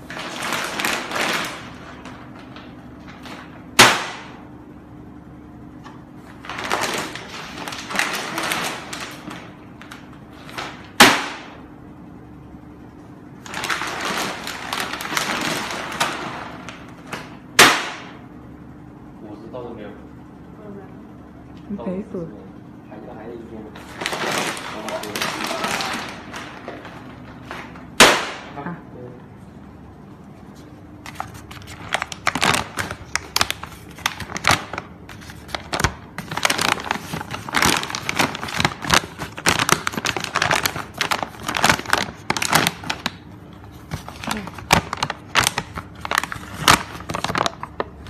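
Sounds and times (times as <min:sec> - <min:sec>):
plastic bag crinkling: 0:00.0 - 0:03.7, 0:06.3 - 0:11.0, 0:13.4 - 0:17.2, 0:23.7 - 0:27.8, 0:31.0 - 0:48.0
plastic bag cracking: 0:00.0 - 0:04.5, 0:06.3 - 0:11.7, 0:13.4 - 0:18.2, 0:23.7 - 0:28.6, 0:31.0 - 0:48.0.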